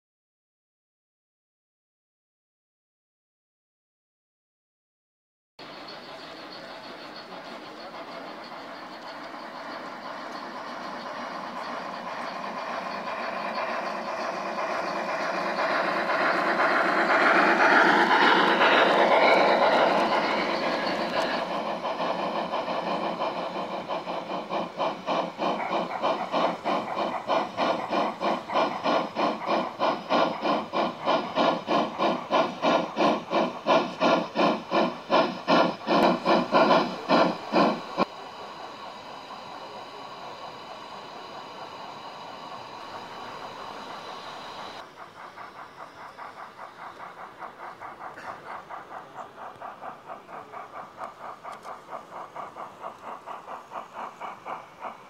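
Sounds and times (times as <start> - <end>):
model steam locomotive chuffing: 5.6 - 55.0
steam hiss: 5.6 - 55.0
train rumble: 5.6 - 55.0.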